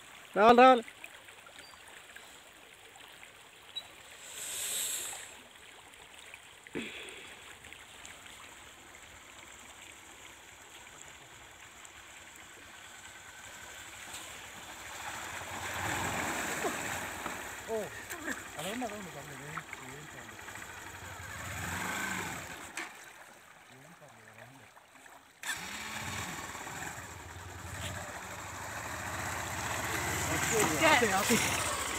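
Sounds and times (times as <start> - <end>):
shallow river flowing: 0.0 - 31.9
motorcycle riding into water: 10.3 - 23.1, 25.4 - 31.9.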